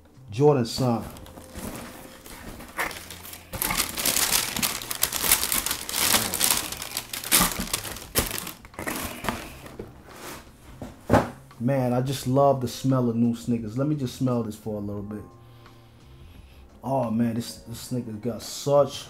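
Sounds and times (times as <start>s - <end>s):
tissue paper crinkling: 0.9s - 10.5s.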